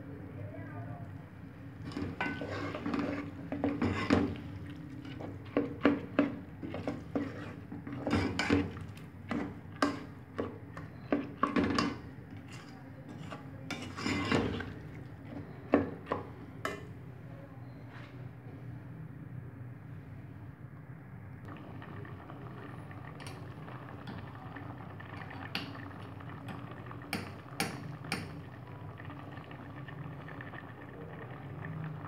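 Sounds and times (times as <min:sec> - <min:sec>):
lentils frying in oil: 0:01.7 - 0:16.3, 0:21.5 - 0:32.0
metal ladle scraping pot: 0:01.8 - 0:15.6.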